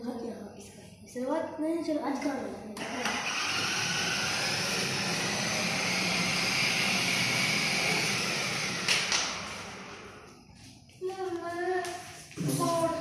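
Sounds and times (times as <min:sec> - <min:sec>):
toy motorcycle motor whirring: 0:02.8 - 0:10.0.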